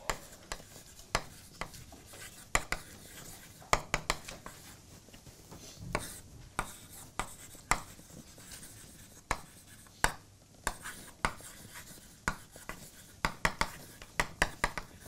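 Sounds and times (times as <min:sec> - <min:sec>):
chalk scratching on blackboard: 0:00.0 - 0:04.8, 0:05.6 - 0:15.0
chalk tapping on board: 0:00.0 - 0:04.8, 0:05.5 - 0:15.0.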